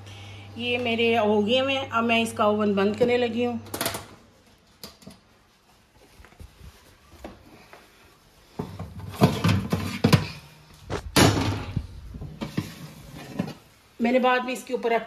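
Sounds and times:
metal baking tray scraping rack: 12.3s - 13.7s.

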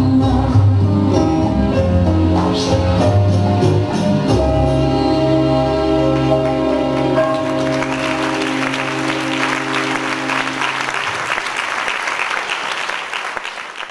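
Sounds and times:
rumba music: 0.0s - 11.2s
audience applause: 6.1s - 13.9s.

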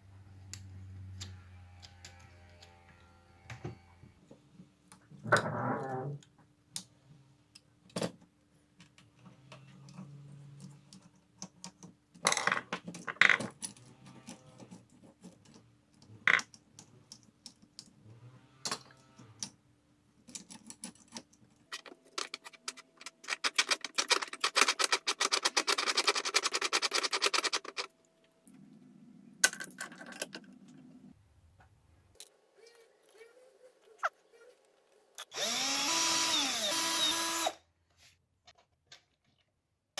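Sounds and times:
small metal parts clattering: 20.2s - 27.9s.

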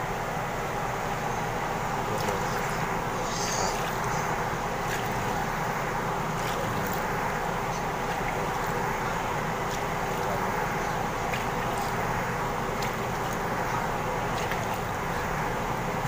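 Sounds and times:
steady background hiss: 0.0s - 16.0s
water pouring into plastic basin: 2.2s - 16.0s.

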